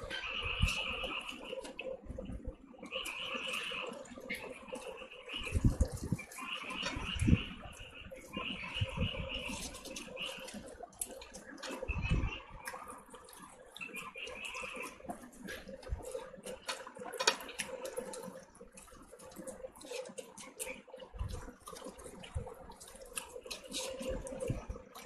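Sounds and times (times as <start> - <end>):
chewing and lip smacks: 8.2 - 25.0
fingers squelching in rice and curry: 12.6 - 25.0.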